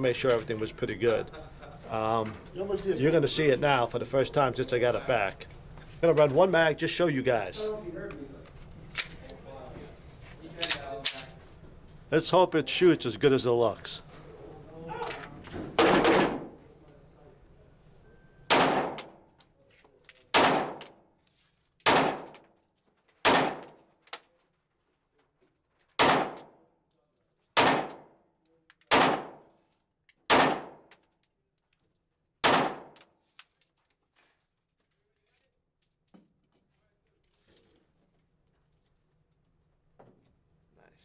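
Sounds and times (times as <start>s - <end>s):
pistol shots echoing indoors: 15.8s - 16.6s, 18.5s - 19.2s, 20.3s - 21.0s, 21.8s - 22.4s, 23.2s - 23.9s, 26.0s - 26.6s, 27.6s - 28.2s, 28.9s - 29.6s, 30.3s - 30.9s, 32.4s - 33.1s.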